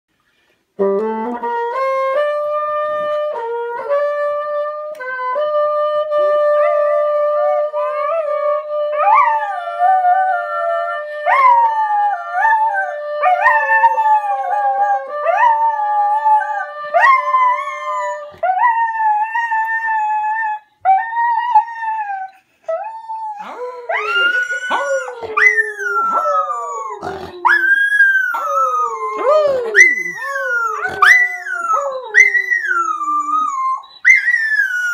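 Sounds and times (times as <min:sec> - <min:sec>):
bassoon playing held notes: 0:00.8 - 0:11.2
dog howling: 0:23.3 - 0:34.9.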